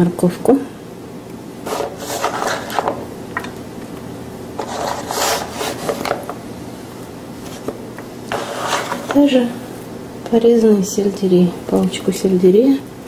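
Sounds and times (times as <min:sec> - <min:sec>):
knife scraping plastic cutting board: 0:01.7 - 0:03.0, 0:04.6 - 0:06.4, 0:07.4 - 0:09.3.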